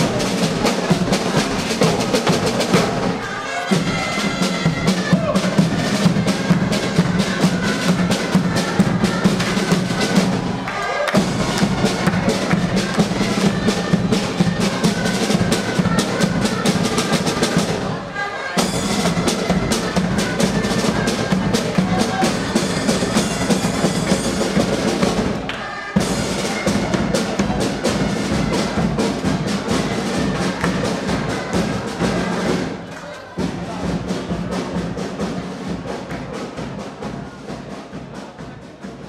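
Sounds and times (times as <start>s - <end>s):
bass drum: 0.0s - 17.6s
drum band marching beat: 0.0s - 18.0s, 18.6s - 39.0s.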